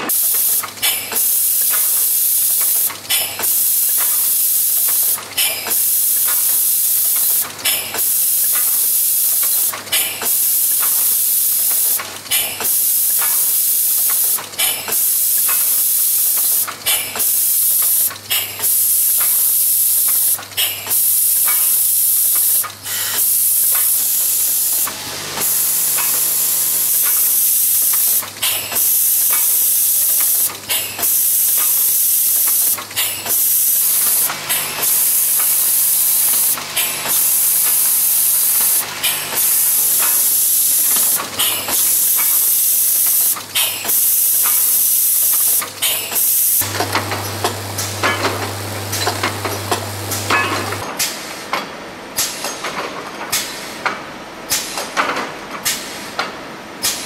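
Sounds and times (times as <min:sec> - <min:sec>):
machine air hiss: 0:00.0 - 0:51.4
low machine hum: 0:46.6 - 0:50.8.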